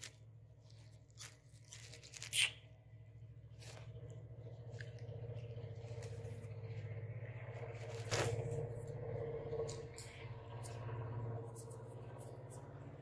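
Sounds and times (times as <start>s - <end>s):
bread tearing by hand: 0.0s - 2.9s, 7.8s - 8.6s
low hum: 0.0s - 13.0s.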